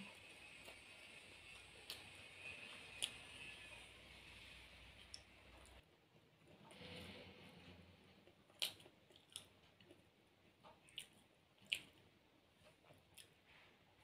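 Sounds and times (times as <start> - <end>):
soft chewing: 0.0 - 3.5, 5.0 - 14.0.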